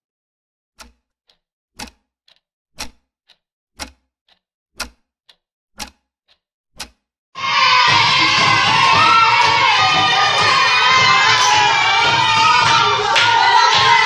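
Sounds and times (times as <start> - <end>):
clock ticking: 0.8 - 14.0.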